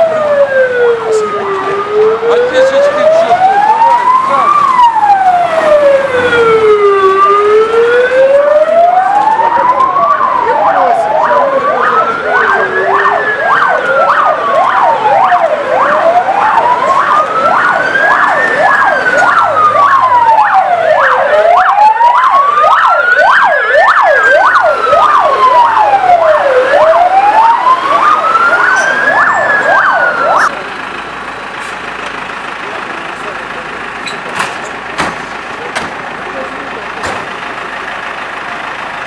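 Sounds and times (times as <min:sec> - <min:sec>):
yelping siren: 0:00.0 - 0:30.5
wailing siren: 0:00.0 - 0:30.6.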